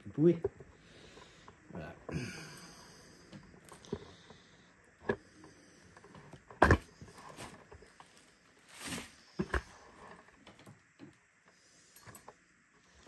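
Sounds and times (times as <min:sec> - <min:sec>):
scraping rustle of box: 0:07.0 - 0:09.8.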